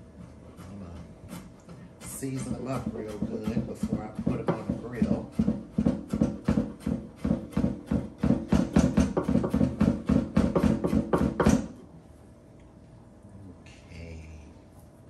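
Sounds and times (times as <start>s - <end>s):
knife chopping on wooden board: 0.2s - 11.8s.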